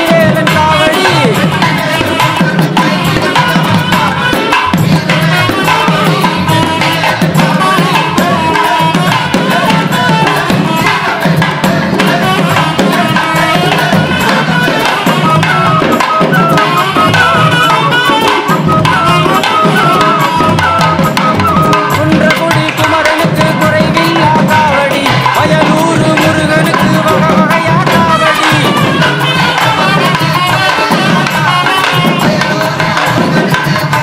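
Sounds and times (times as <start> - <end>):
fast hand-drum strokes: 0.0 - 34.0
wavering melody line: 13.2 - 30.6.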